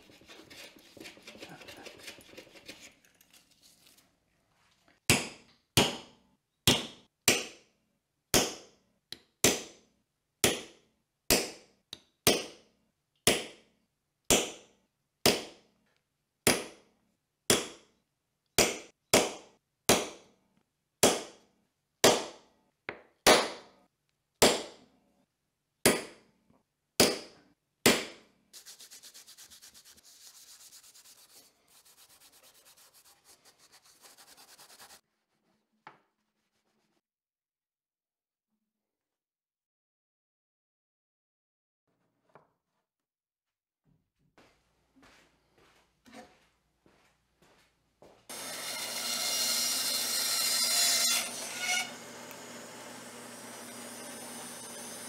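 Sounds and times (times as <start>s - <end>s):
hand sanding wood: 0.0s - 2.8s, 28.6s - 35.0s.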